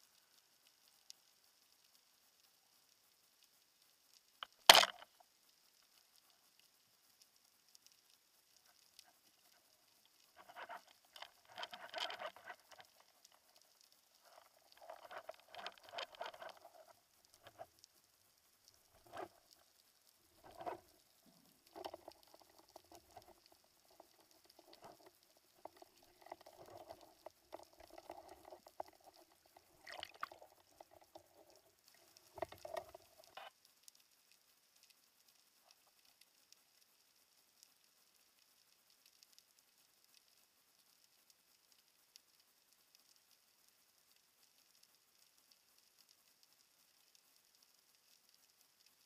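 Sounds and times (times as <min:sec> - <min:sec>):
underwater crackling: 0:00.0 - 0:49.0
camera housing clicks and knocks: 0:04.7 - 0:05.0.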